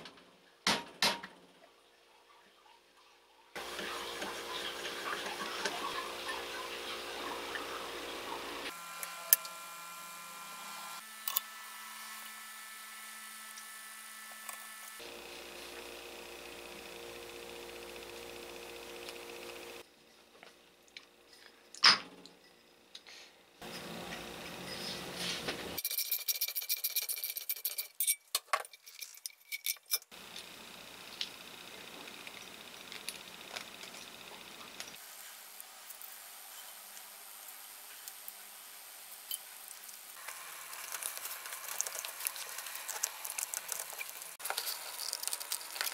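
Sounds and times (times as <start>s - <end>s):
metal parts rubbing: 25.8s - 30.1s.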